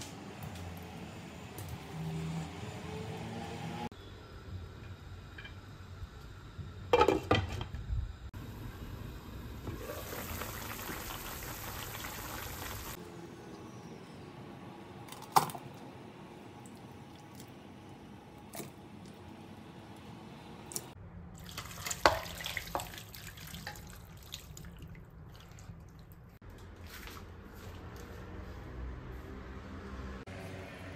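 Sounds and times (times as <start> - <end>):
liquid bubbling in a pan: 9.6 - 13.0
liquid sloshing: 21.4 - 26.4.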